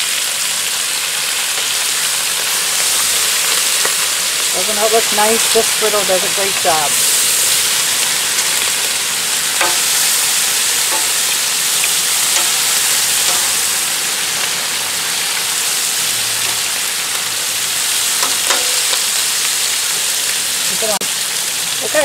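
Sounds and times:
bacon sizzling on a griddle: 0:00.0 - 0:22.0
metal tongs clicking: 0:12.3 - 0:13.8.

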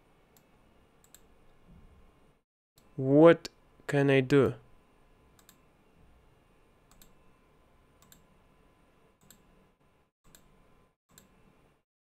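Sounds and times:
computer mouse clicks: 0:00.4 - 0:01.3, 0:05.4 - 0:05.6, 0:06.9 - 0:07.2, 0:08.0 - 0:08.3, 0:09.2 - 0:09.5, 0:10.3 - 0:10.5, 0:11.1 - 0:11.4.

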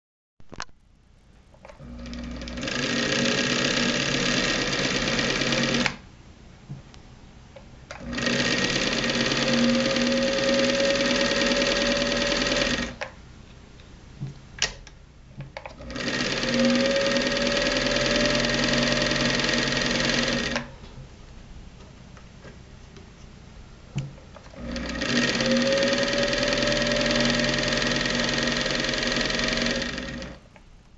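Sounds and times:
sewing machine running: 0:01.7 - 0:06.0, 0:07.9 - 0:13.0, 0:15.7 - 0:20.7, 0:24.4 - 0:30.4.

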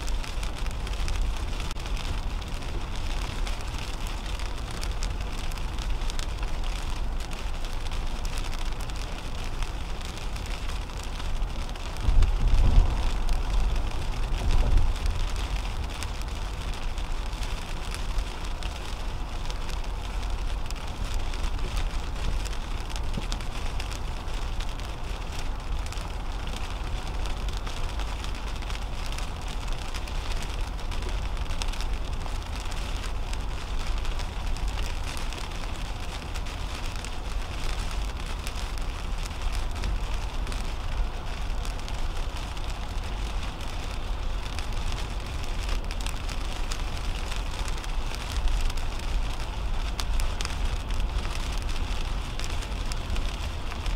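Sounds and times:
raindrops pattering on windshield: 0:00.0 - 0:53.9
tyres rumbling on wet road: 0:00.0 - 0:53.9.

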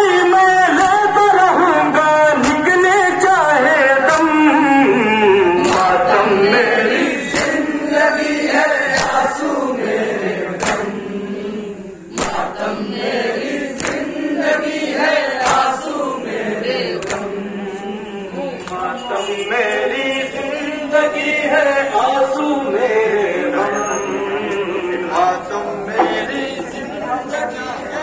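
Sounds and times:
men chanting in unison: 0:00.0 - 0:28.0
hands slapping chests: 0:00.8 - 0:01.0, 0:02.4 - 0:02.6, 0:04.1 - 0:04.4, 0:05.6 - 0:06.1, 0:07.3 - 0:07.7, 0:08.9 - 0:09.3, 0:10.5 - 0:11.0, 0:12.1 - 0:12.6, 0:13.7 - 0:14.1, 0:15.3 - 0:15.8, 0:17.0 - 0:17.3, 0:18.6 - 0:18.9.

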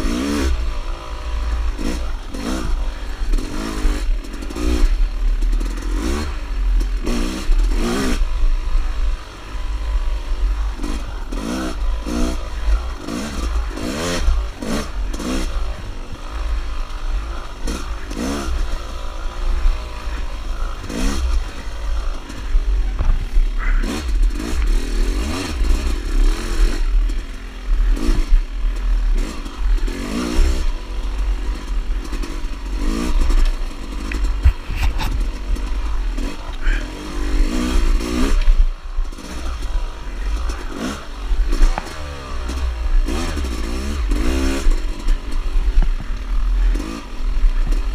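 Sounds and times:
dirt bike engine revving: 0:00.0 - 0:47.9.

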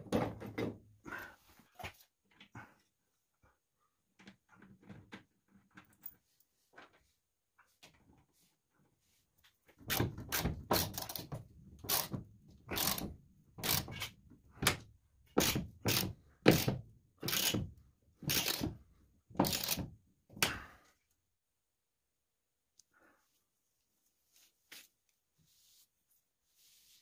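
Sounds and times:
ratchet wrench ratcheting: 0:12.7 - 0:14.1, 0:17.3 - 0:17.6, 0:18.3 - 0:18.6, 0:19.4 - 0:19.8.

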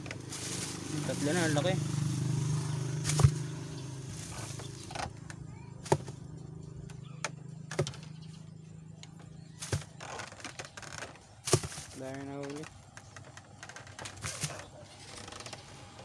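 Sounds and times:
low motor hum: 0:00.0 - 0:11.3.

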